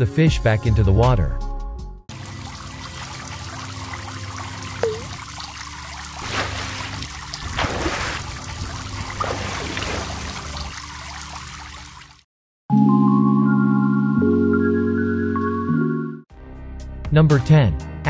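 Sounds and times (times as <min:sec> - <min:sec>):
water trickling and splashing: 0:02.1 - 0:12.3
short bloop: 0:04.8 - 0:05.2.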